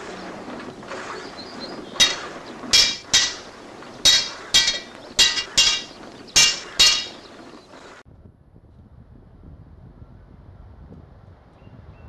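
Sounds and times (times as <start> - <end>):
hammer striking metal on anvil: 2.0 - 7.3.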